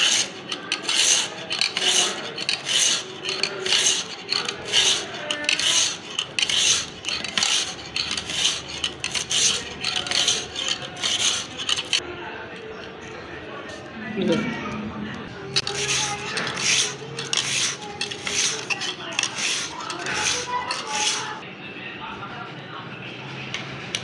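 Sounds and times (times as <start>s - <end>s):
sharpening stone scraping knife edge: 0.0s - 12.0s, 15.5s - 21.4s.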